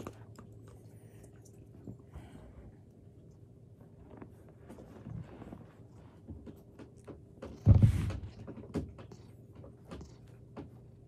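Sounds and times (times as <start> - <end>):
brush scratching through cat fur: 3.6 - 11.0
rustling thump near microphone: 4.5 - 9.1.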